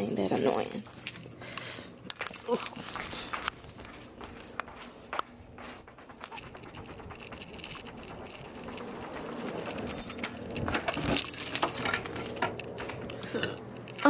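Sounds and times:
keys jangling: 0.0s - 5.2s, 6.2s - 14.0s
key turning in door lock: 7.2s - 13.2s.

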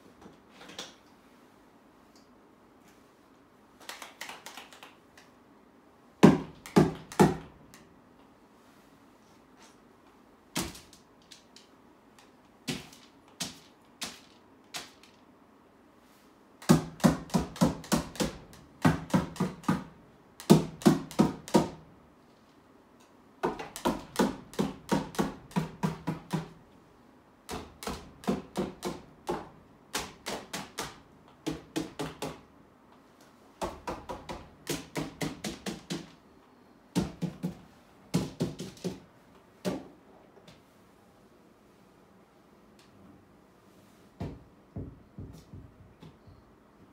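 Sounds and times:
painting tool tapping on panel: 44.2s - 46.0s.

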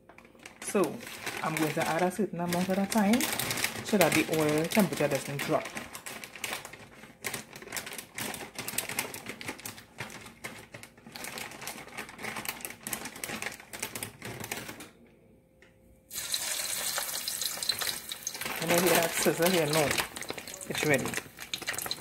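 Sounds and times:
fries sizzling in oil: 16.1s - 22.0s
hot oil crackling and popping: 16.1s - 22.0s.

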